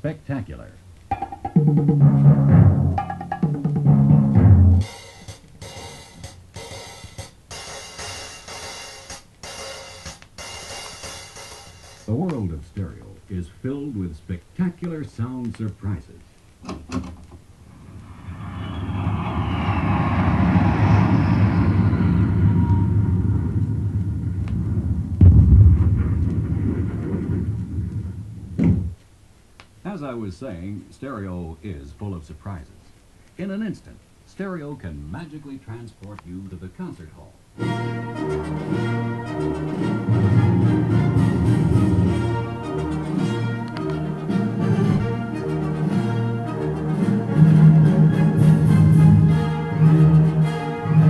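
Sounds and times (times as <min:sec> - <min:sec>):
hissing cymbal-like percussion: 0:04.8 - 0:12.2
heavy low rumble: 0:17.5 - 0:29.0
deep boom: 0:17.6 - 0:29.0.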